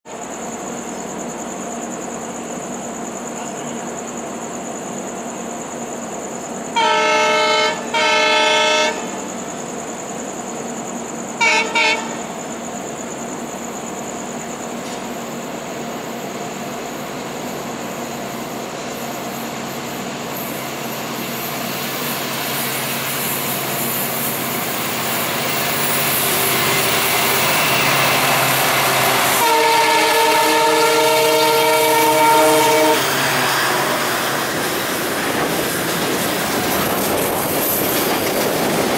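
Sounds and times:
freight train rumbling: 0.1s - 38.9s
locomotive horn blasts: 6.8s - 9.2s, 11.4s - 12.2s, 28.2s - 34.0s.

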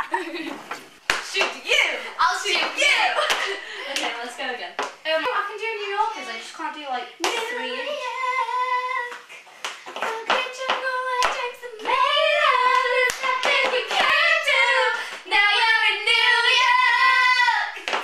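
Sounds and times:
girls singing loudly: 1.2s - 3.5s, 7.1s - 9.3s, 9.9s - 18.0s.

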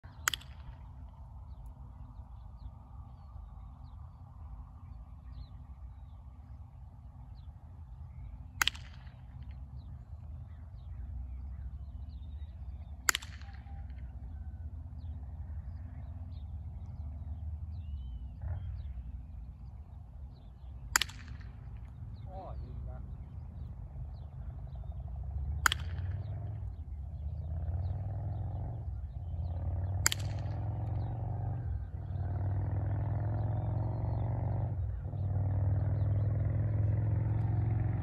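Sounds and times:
birds chirping faintly: 0.0s - 38.0s
low steady rumble: 0.0s - 38.0s
launcher snapping: 21.0s - 21.5s, 30.0s - 30.5s.

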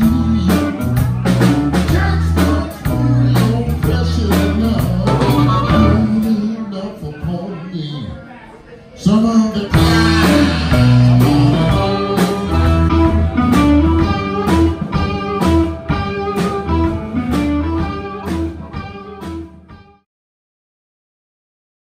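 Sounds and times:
plucked instrumental music: 5.0s - 6.3s, 9.8s - 20.0s.

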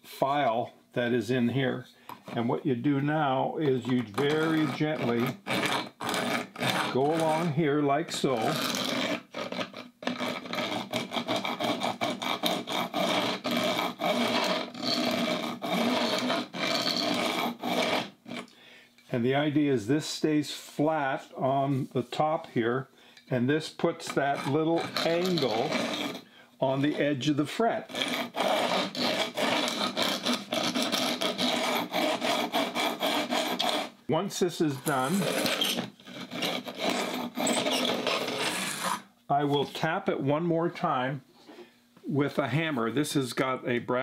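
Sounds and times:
file rasping across fret ends: 10.2s - 18.1s, 24.0s - 26.2s, 27.8s - 33.9s
file rasping on fret ends: 27.9s - 33.9s.

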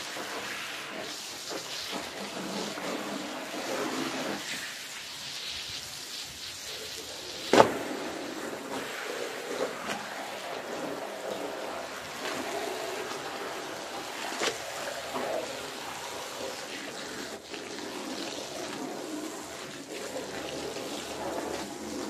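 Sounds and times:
water trickling on floor: 0.0s - 22.0s
wet rug being pulled: 7.4s - 22.0s.

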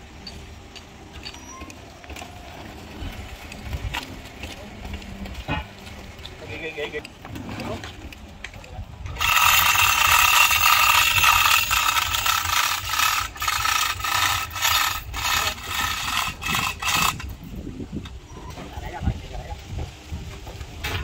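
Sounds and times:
harsh scraping: 9.0s - 17.3s.

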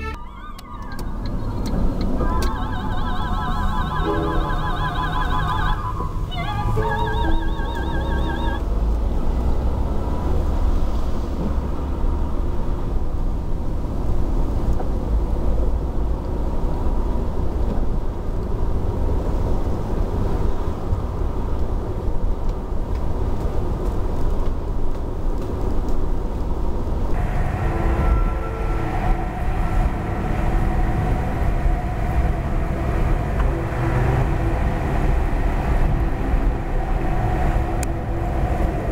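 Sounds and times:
steady tones: 0.0s - 8.6s
car engine and tyre rumble: 0.0s - 38.9s.

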